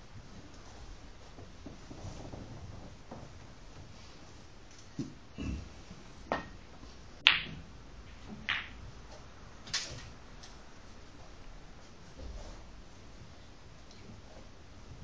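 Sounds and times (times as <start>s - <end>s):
snooker balls clicking: 6.1s - 10.7s
cue striking ball: 7.2s - 8.8s.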